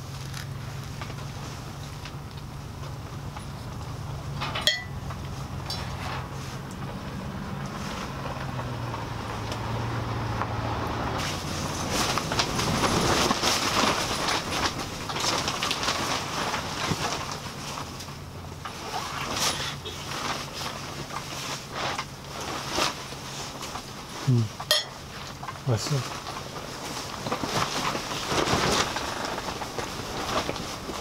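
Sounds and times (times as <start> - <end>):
spoon clinking against dishes: 24.7 - 25.0.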